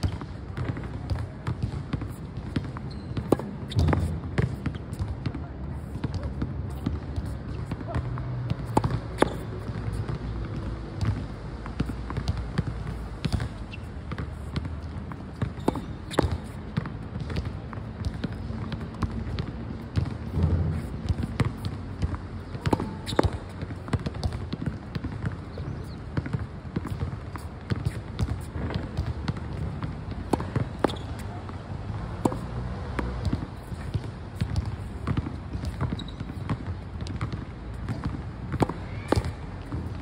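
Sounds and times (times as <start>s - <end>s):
ball bouncing on hard court: 0.0s - 40.0s.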